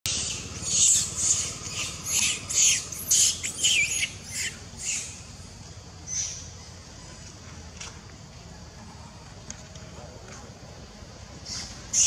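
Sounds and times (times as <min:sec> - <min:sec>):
monkey squealing and squawking: 0:00.1 - 0:05.3.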